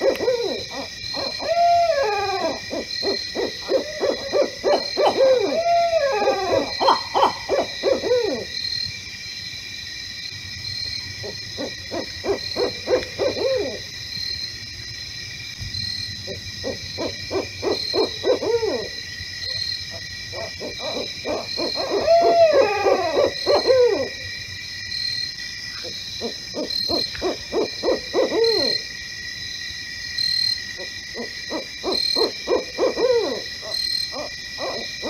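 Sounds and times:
owl hooting: 0.0s - 8.5s, 11.2s - 13.9s, 16.3s - 19.6s, 20.3s - 24.3s, 25.8s - 28.8s, 30.8s - 35.0s.

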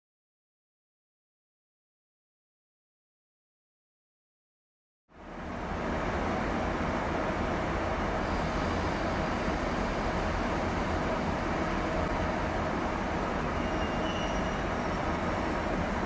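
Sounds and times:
train running noise: 5.2s - 16.0s.

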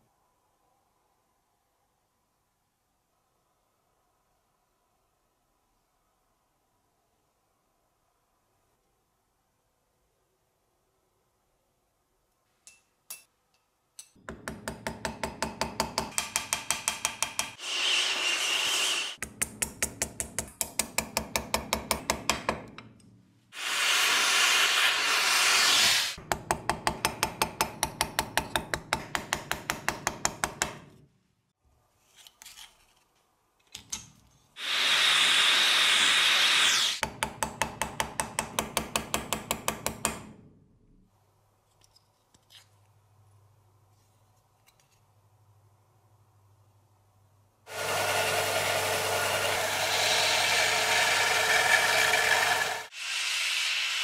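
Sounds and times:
hammer tapping on metal punch: 14.2s - 17.5s
steady loud hiss: 23.6s - 26.2s, 34.6s - 37.0s.

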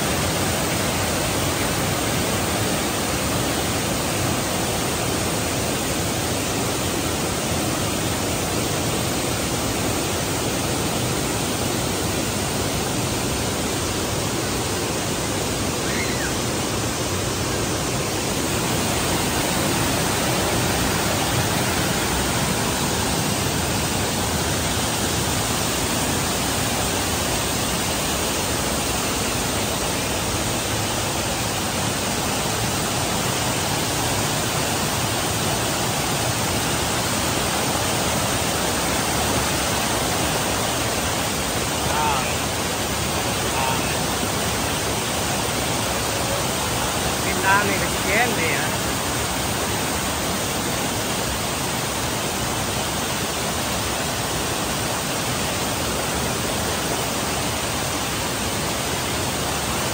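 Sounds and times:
waterfall rushing: 0.0s - 59.9s.

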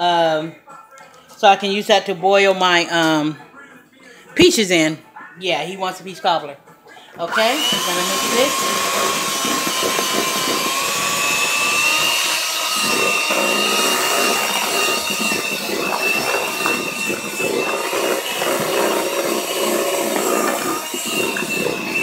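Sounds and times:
electric hand mixer whirring: 7.2s - 22.0s.

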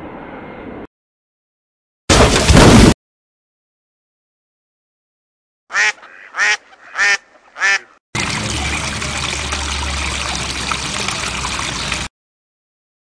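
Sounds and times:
duck quacking: 5.7s - 8.0s.

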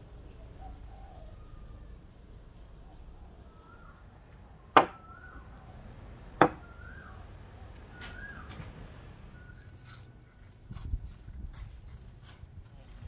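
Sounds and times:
birds chirping faintly: 0.1s - 13.0s
objects knocking on wooden tabletop: 4.8s - 5.0s.

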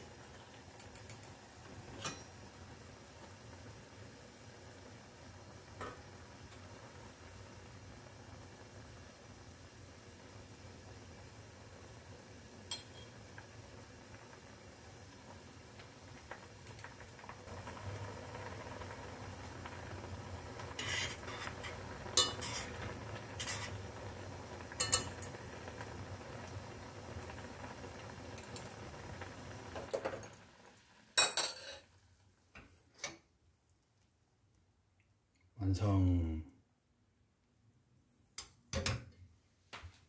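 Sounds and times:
water bubbling in a pot: 0.0s - 31.3s
metal pot clanks: 2.0s - 2.3s, 12.7s - 13.2s, 20.8s - 22.8s, 24.8s - 25.3s, 31.2s - 31.8s.

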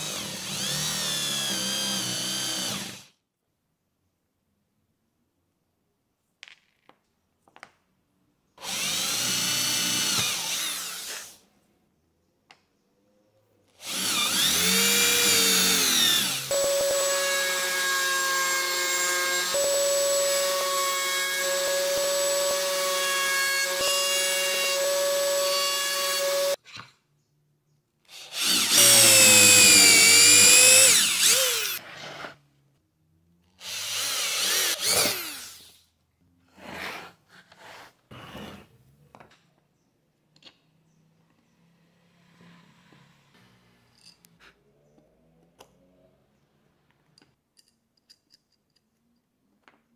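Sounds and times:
electric power tools spinning: 0.0s - 3.1s, 8.6s - 11.4s, 13.8s - 26.6s, 28.2s - 31.8s, 33.6s - 35.8s
router cutting wood: 0.0s - 3.1s, 8.6s - 11.4s, 13.8s - 26.6s, 28.2s - 31.8s, 33.6s - 35.8s
electric drill boring into plywood: 0.0s - 3.2s, 8.6s - 11.4s, 13.8s - 26.6s, 28.1s - 31.8s, 33.6s - 35.8s.

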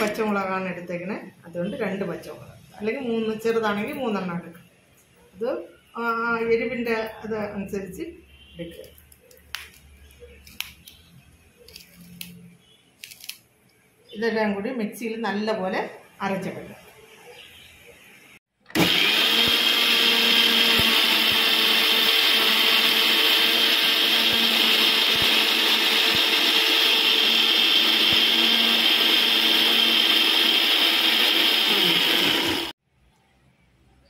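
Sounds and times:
electric mixer grinder running: 18.8s - 32.8s.

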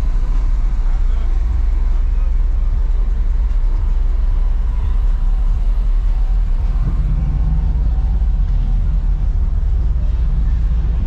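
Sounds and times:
car engine running: 0.0s - 11.0s.

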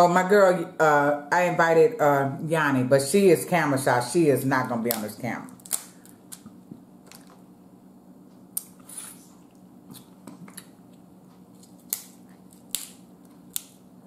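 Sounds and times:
steady low hum: 0.0s - 14.0s
crab shells cracking: 5.5s - 6.4s, 11.6s - 13.8s.

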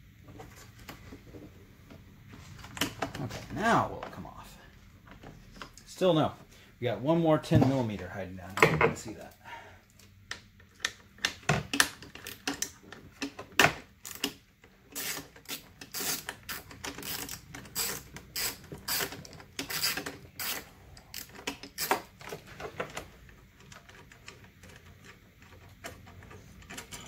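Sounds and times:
socket ratchet clicking: 14.0s - 22.0s.

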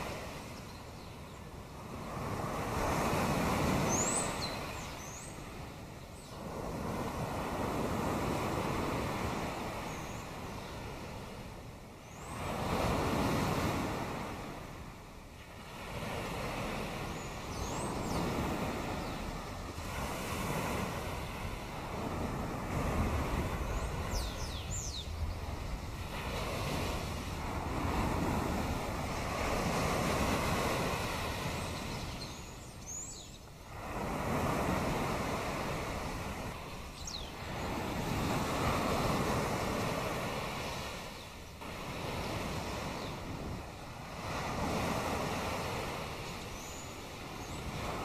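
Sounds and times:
sea waves washing ashore: 0.0s - 48.0s
high bird calls: 23.7s - 25.5s.

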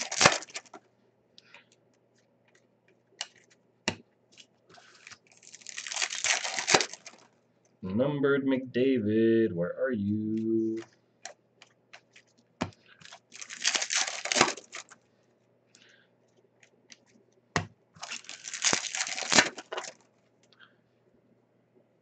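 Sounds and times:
wrapper being torn open: 0.0s - 0.8s, 4.8s - 7.3s, 13.0s - 15.0s, 18.0s - 20.0s.

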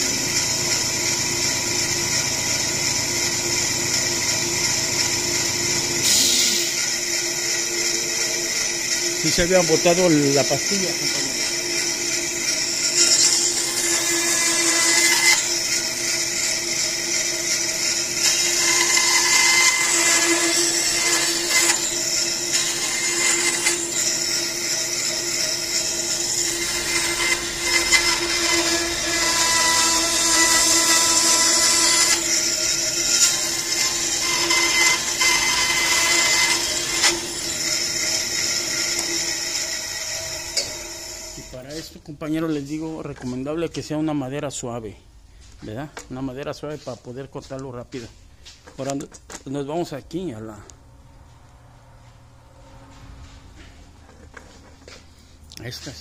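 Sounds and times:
bandsaw blade cutting wood: 0.0s - 41.9s
bandsaw motor hum: 0.0s - 41.9s.

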